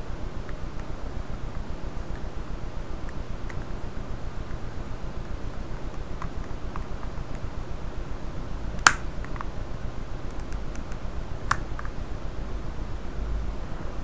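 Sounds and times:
plastic cover snapping: 0:08.8 - 0:09.5.

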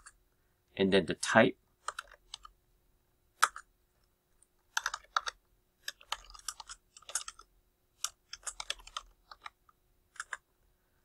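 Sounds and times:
keyboard keys clicking: 0:04.7 - 0:07.4, 0:08.0 - 0:09.6.

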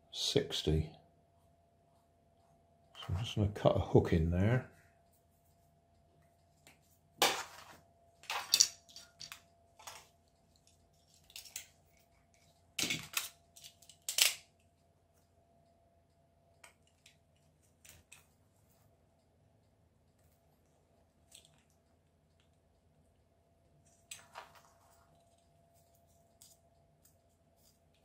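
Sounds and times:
tools clattering on workbench: 0:07.2 - 0:10.1, 0:12.8 - 0:13.3.

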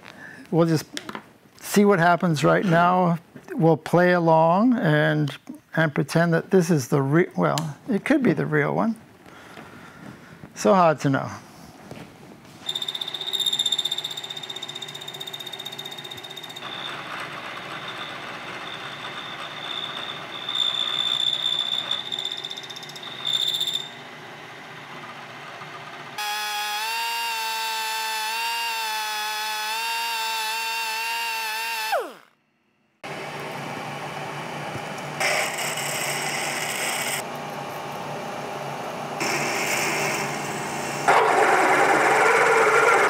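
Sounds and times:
milling cutter grinding steel: 0:12.6 - 0:32.2
machine whine: 0:12.6 - 0:43.0.

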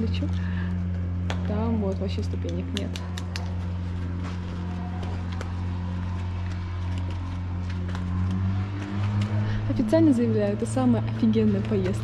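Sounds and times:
low engine drone: 0:00.0 - 0:12.0.

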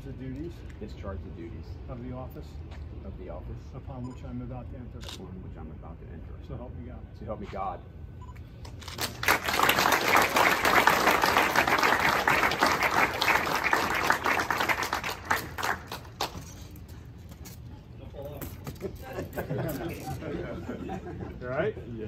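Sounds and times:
audience applauding: 0:09.0 - 0:16.3.

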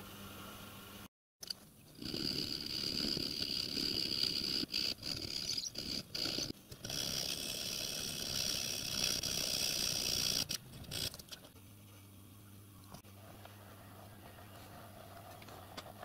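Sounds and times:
file rasping on brass: 0:02.0 - 0:11.1.

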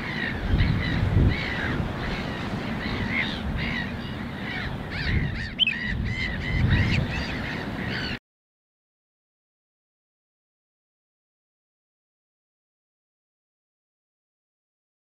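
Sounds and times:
wetland birds calling: 0:00.0 - 0:08.2
wind rumble on microphone: 0:00.0 - 0:08.2.

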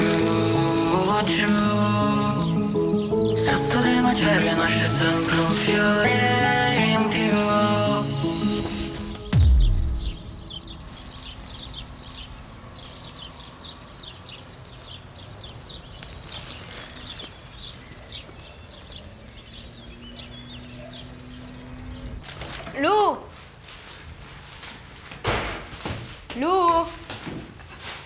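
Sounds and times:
small birds chirping: 0:00.0 - 0:23.0
deep falling boom: 0:09.3 - 0:10.8.

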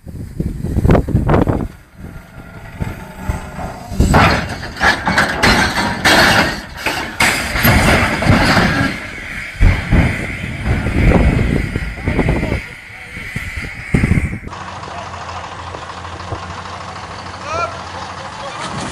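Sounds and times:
heavy metal crashing and scraping: 0:00.9 - 0:14.4
heavy thumps: 0:01.2 - 0:12.6.

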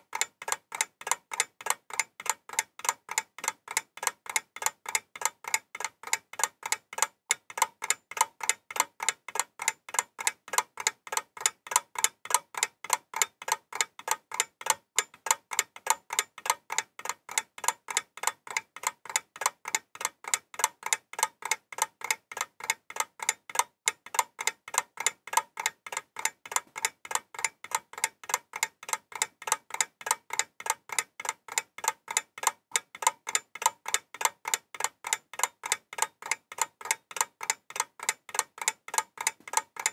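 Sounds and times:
steady ticking: 0:00.0 - 0:39.9.

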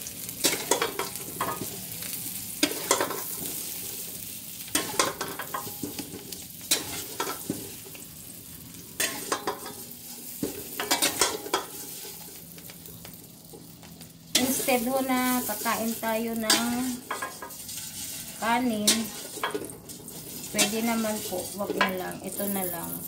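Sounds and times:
potatoes sizzling in butter: 0:00.0 - 0:23.0
spatula clinking and scraping: 0:14.3 - 0:23.0.

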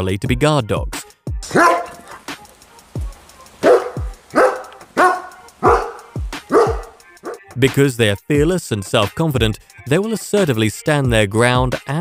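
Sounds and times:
background music with thudding beat: 0:00.3 - 0:12.0
dog barking: 0:01.5 - 0:02.3, 0:03.6 - 0:07.5.

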